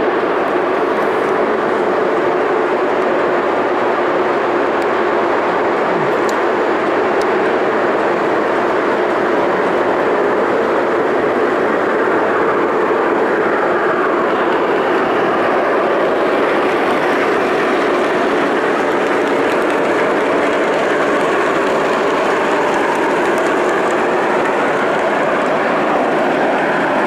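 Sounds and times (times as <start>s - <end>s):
model train running on track: 0.0s - 27.0s.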